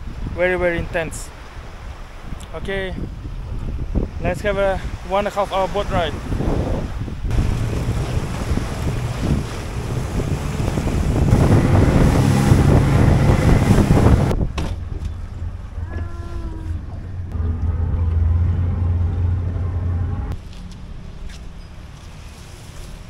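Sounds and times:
rushing wind: 0:00.0 - 0:20.4
water noise: 0:00.0 - 0:23.0
speedboat engine hum: 0:05.5 - 0:23.0.

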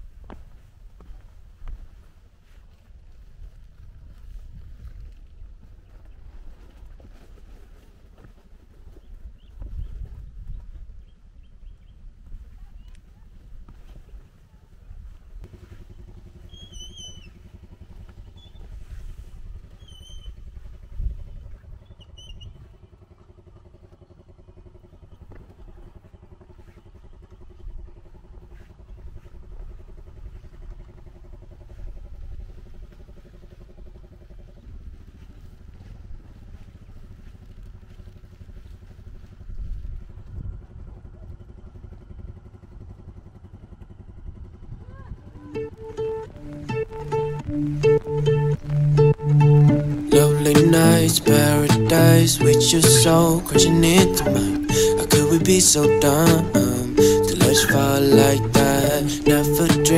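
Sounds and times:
motorcycle engine running: 0:00.0 - 0:59.9
short high chirps: 0:45.6 - 0:59.9.

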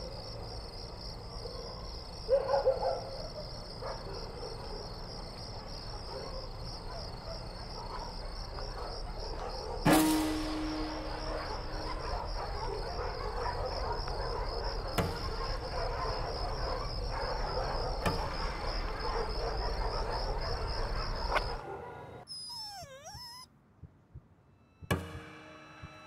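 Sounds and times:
crickets chirping: 0:00.0 - 0:23.5
night-time ambience: 0:00.0 - 0:26.0
wavering cry gliding in pitch: 0:22.3 - 0:23.5.

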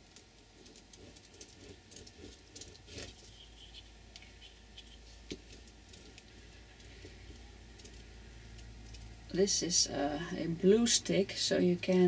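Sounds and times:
glue stick rubbing on paper: 0:00.6 - 0:07.0.

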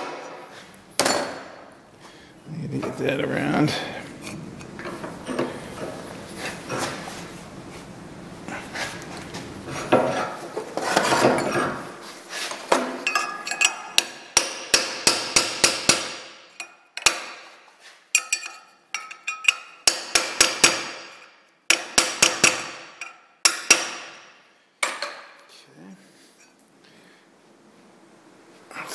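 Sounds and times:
hammer tapping metal punch: 0:13.1 - 0:17.4, 0:18.2 - 0:24.2.

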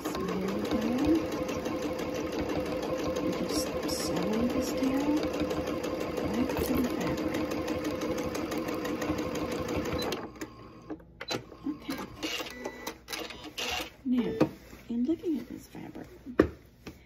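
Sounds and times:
sewing machine running: 0:00.0 - 0:10.9, 0:11.5 - 0:13.9.

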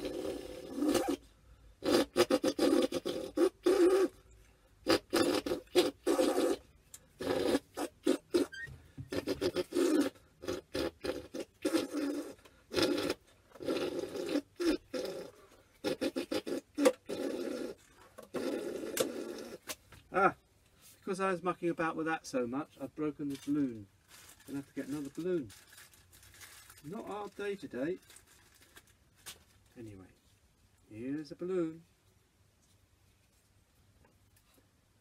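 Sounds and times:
balloon reed buzzing: 0:00.0 - 0:01.2, 0:01.8 - 0:04.2, 0:04.8 - 0:19.7.

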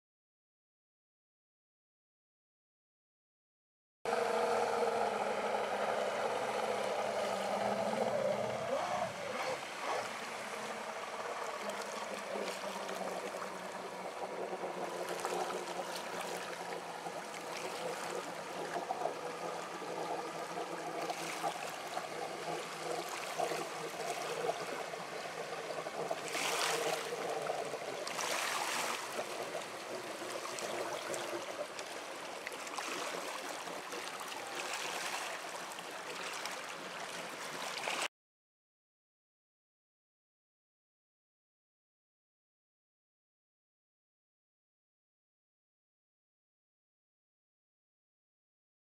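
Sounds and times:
outboard motor passing: 0:04.1 - 0:38.1
water rushing: 0:04.1 - 0:38.1.

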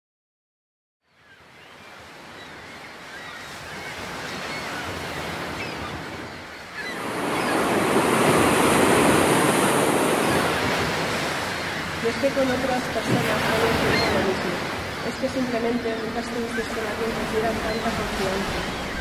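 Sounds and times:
sea waves breaking on rocks: 0:06.9 - 0:19.0.

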